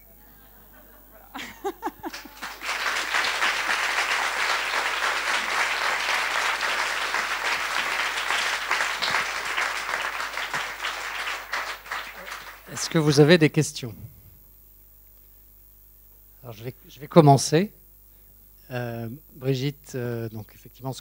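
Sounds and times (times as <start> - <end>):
audience applauding: 1.4 - 13.4.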